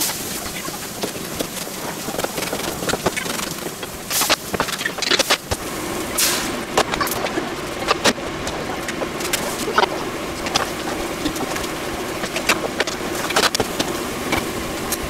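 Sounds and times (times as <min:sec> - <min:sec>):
food stirred in wok: 0:00.0 - 0:15.0
pans hissing on stove: 0:00.0 - 0:15.0.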